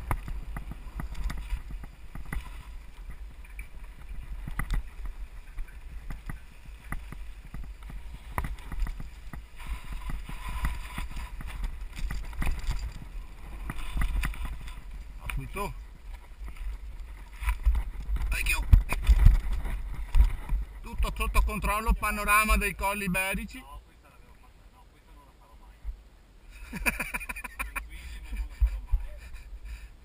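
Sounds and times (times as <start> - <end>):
wind rumble on microphone: 0.0 - 22.8
bike rattling over rocks: 0.0 - 23.4.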